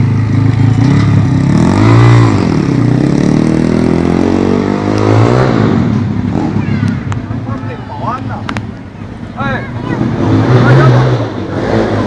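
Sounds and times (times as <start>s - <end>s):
small motorbike engine revving: 9.9s - 12.0s.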